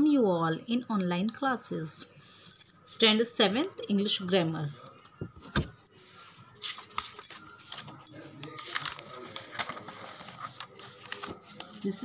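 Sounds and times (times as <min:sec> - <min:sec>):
book pages rustling: 0:06.2 - 0:12.0.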